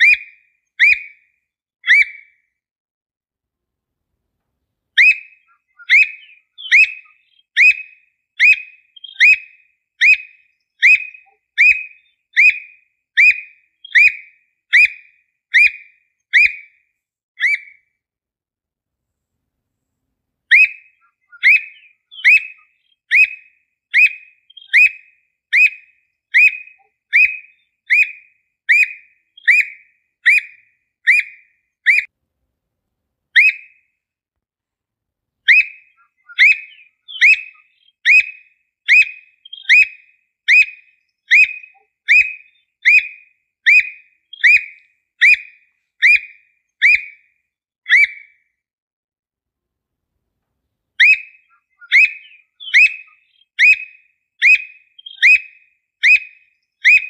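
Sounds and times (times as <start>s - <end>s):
bird whistled calls: 0.0s - 2.4s, 5.0s - 16.8s, 17.4s - 17.9s, 20.5s - 32.1s, 33.4s - 33.9s, 35.5s - 47.3s, 47.9s - 48.4s, 51.0s - 57.0s.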